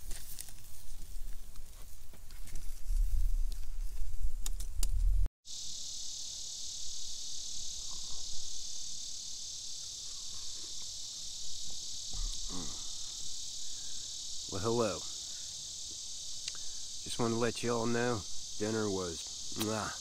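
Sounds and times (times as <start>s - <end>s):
insect chorus chirring: 0.0s - 20.0s
low rumble on microphone: 2.7s - 5.3s.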